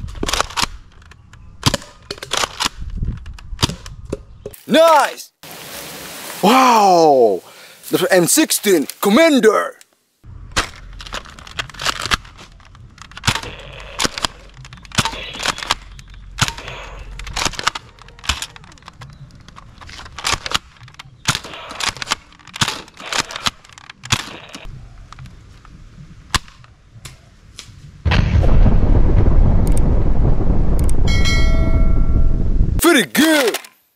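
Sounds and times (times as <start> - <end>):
loud explosion rumble: 28.0 - 32.8.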